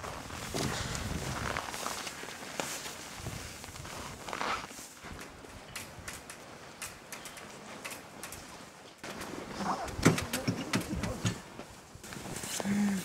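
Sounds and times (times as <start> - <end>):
footsteps crunching in snow: 0.0 - 5.4
knocks and clatter: 5.1 - 11.5.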